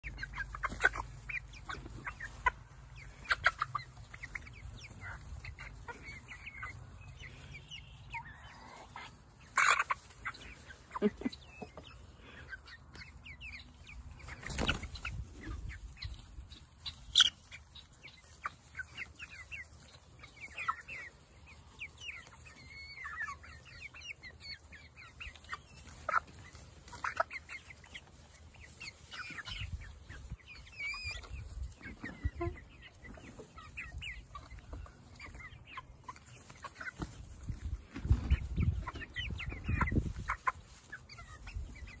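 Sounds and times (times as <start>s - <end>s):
chicks cheeping and clucking: 0.0s - 42.0s.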